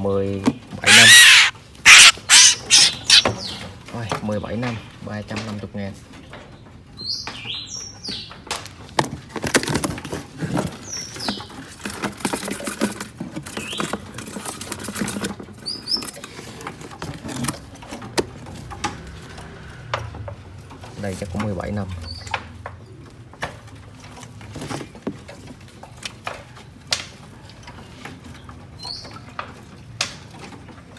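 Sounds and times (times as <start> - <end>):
short high bird chirps: 0.9 - 3.3.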